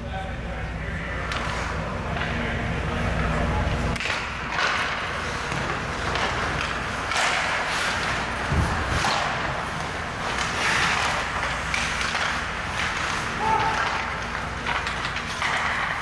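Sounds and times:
skate blades scraping ice: 3.3 - 16.0.

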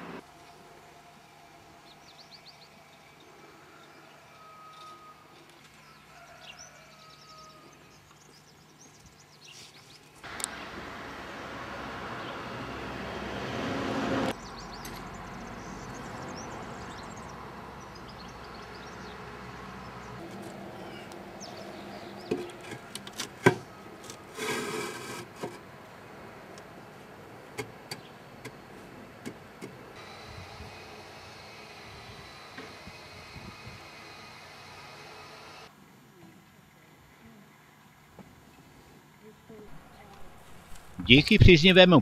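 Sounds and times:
block scraping: 22.3 - 25.6.

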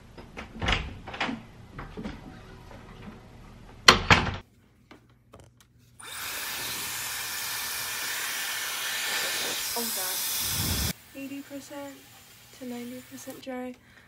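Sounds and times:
hair styler blowing air: 6.0 - 13.5.

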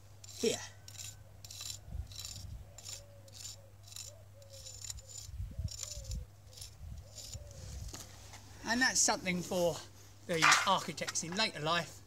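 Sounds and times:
stick scratching wet concrete: 0.2 - 8.1.

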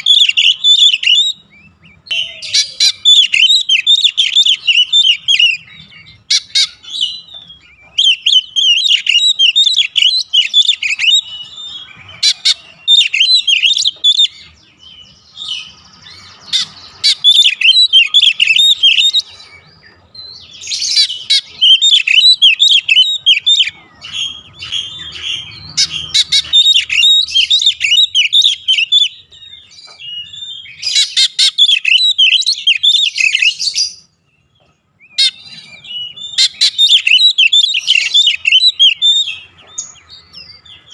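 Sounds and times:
bird warbling song: 0.0 - 40.9.

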